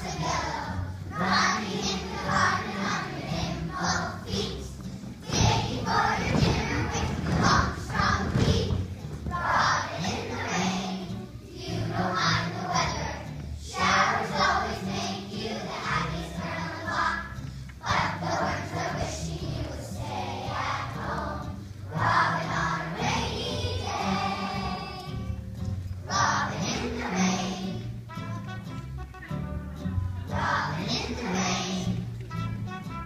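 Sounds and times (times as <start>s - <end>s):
children's choir singing: 0.0s - 28.6s, 30.2s - 32.7s
musical accompaniment: 0.0s - 33.0s.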